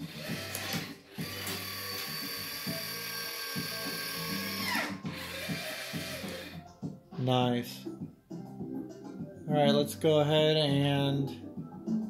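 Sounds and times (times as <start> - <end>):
electric motor whining: 0.0 - 6.6.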